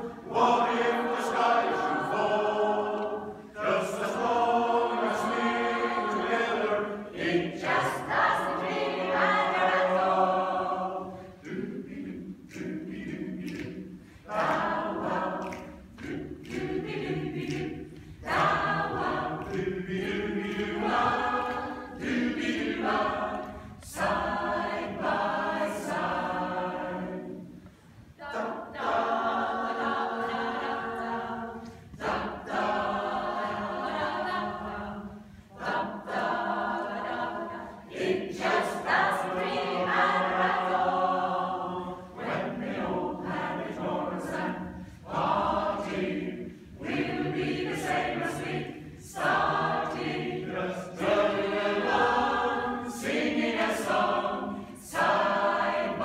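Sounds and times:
mixed choir singing a cappella: 0.0 - 56.0.

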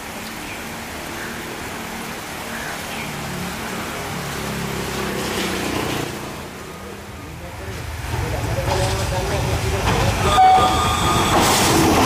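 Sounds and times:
rain hiss: 0.0 - 12.0
diesel locomotive engine: 6.8 - 12.0.

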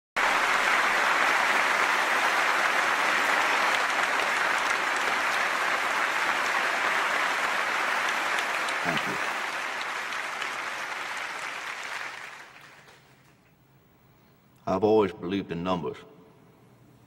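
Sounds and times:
large audience applauding: 0.2 - 13.5.

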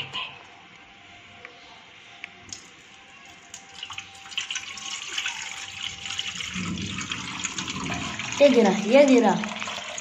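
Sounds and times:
water pouring into steel bowl: 3.5 - 10.0.

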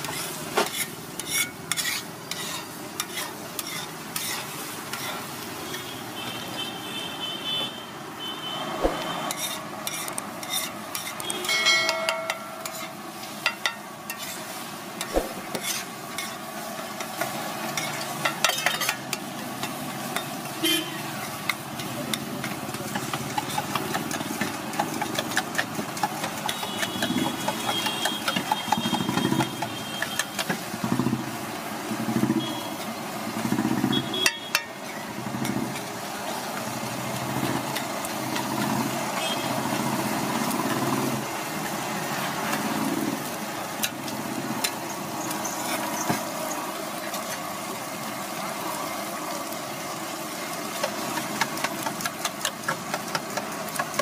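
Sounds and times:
metal spatula scraping griddle: 0.0 - 5.9, 9.2 - 20.3
frying sizzle: 0.0 - 7.3, 8.2 - 54.0.

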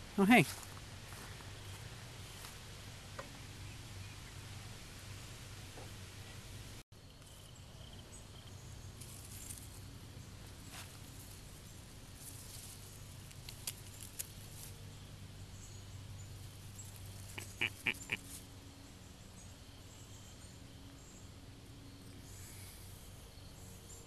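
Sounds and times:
weed stems rustling and snapping: 12.2 - 14.8.

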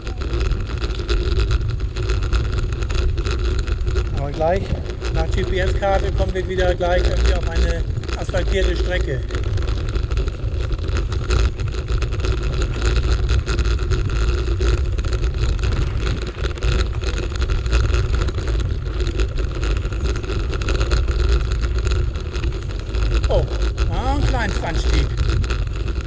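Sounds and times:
bike rattling on dirt path: 0.0 - 26.0
wind rumbling on microphone: 0.0 - 26.0.

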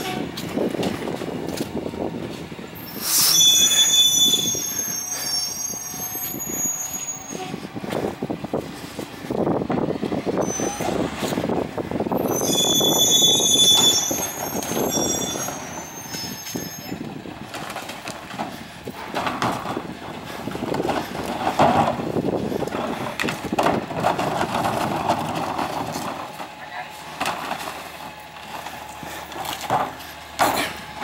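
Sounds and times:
truck brakes squealing: 2.8 - 7.8, 10.3 - 11.5, 12.1 - 17.1
carts clattering into hopper: 16.8 - 26.6.

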